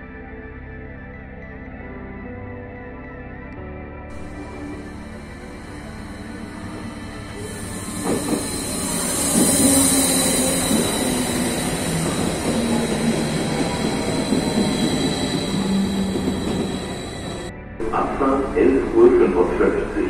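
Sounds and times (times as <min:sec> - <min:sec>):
electric train drive hum: 0:04.1 - 0:20.0
train wheels on rails: 0:04.2 - 0:19.0
steady high hiss: 0:04.2 - 0:20.0.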